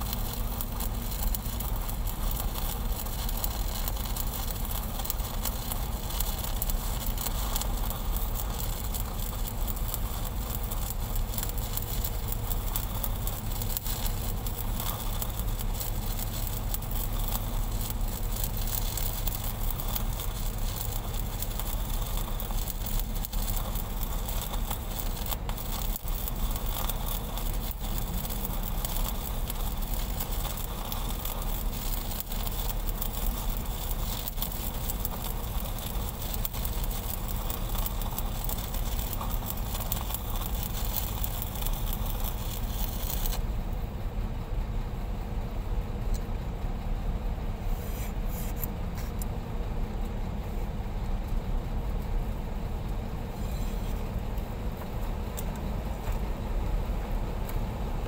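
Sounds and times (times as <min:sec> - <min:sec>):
welding arc crackling: 0:00.0 - 0:44.2, 0:45.2 - 0:58.0
low steady hum: 0:00.0 - 0:58.0.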